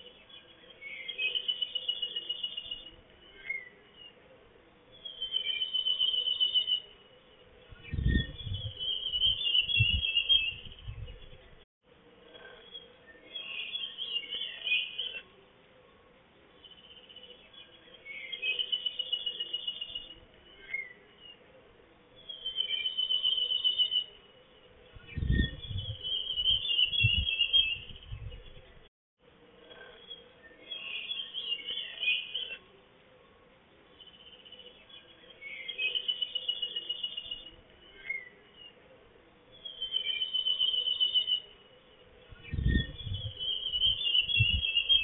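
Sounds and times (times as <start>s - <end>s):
songbird trilling: 42.3s - 45.0s.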